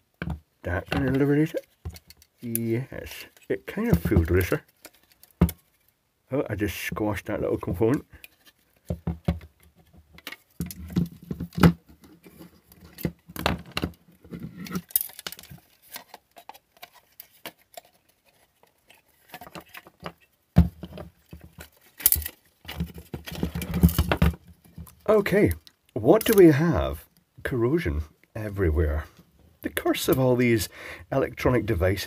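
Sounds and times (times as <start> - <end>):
clicks and scrapes of disassembly: 0.3 - 6.0, 7.9 - 26.4.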